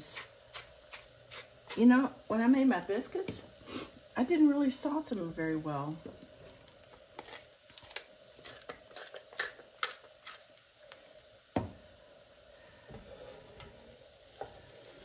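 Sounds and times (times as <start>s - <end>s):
salt grinder grinding clicks: 7.2s - 10.4s.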